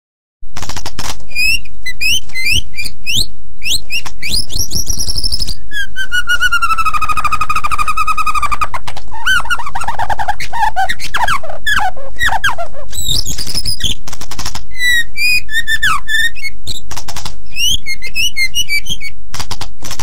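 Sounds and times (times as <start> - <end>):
bird singing whistled notes: 1.3 - 14.0, 14.7 - 16.8, 17.5 - 19.2.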